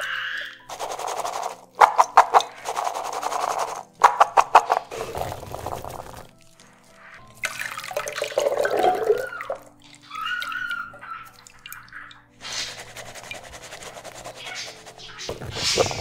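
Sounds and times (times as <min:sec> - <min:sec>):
liquid pouring through strainer: 0:04.9 - 0:06.6, 0:07.2 - 0:16.0.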